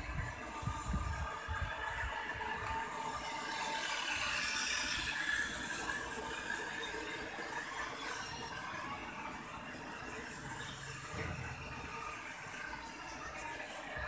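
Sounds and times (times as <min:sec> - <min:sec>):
toy train mechanical whir: 0:00.0 - 0:14.0.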